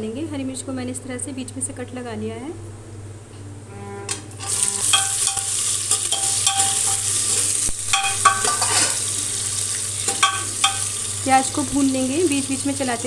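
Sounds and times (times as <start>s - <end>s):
metal spoon scraping pan: 4.4s - 9.1s
onions sizzling in hot oil: 4.4s - 13.0s.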